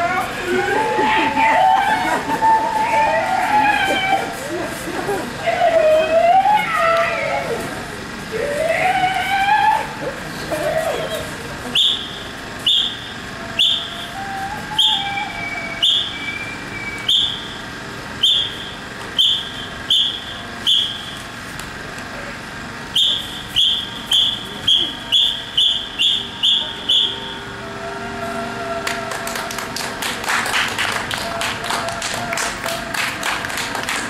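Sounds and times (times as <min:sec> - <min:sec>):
whistle blasts: 0:11.0 - 0:17.6, 0:18.2 - 0:21.2, 0:22.9 - 0:29.1.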